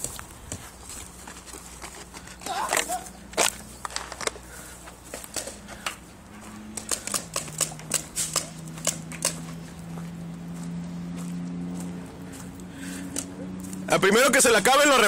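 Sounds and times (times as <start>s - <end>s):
paintball markers firing: 6.7s - 9.4s.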